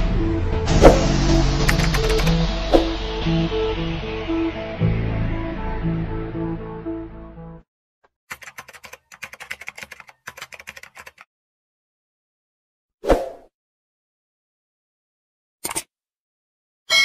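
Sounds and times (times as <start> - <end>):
keyboard typing: 1.7 - 2.4, 8.3 - 11.3.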